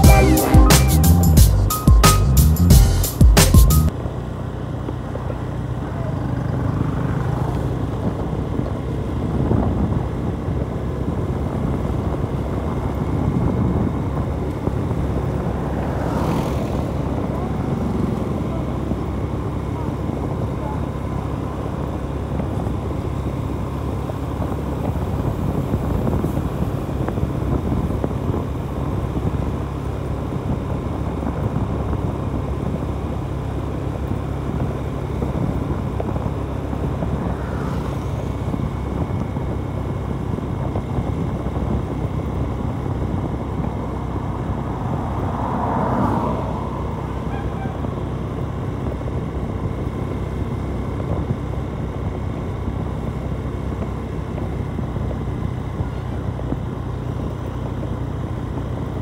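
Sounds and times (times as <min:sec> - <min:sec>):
horn: 0:00.0 - 0:01.4
motorcycle engine hum: 0:00.0 - 0:59.0
wind and road noise: 0:00.0 - 0:59.0.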